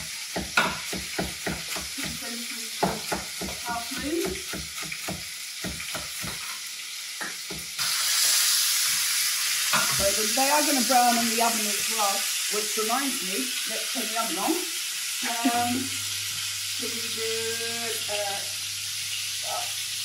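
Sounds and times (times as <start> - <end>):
meat sizzling in frying pan: 0.0 - 20.0
knife chopping on wooden board: 0.3 - 2.2, 2.8 - 6.5.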